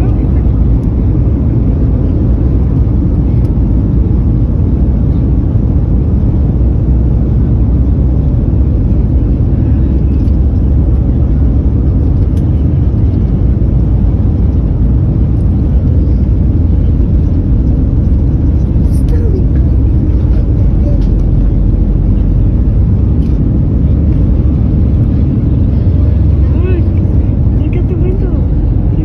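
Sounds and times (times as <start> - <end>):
airliner cabin rumble: 0.0 - 29.0.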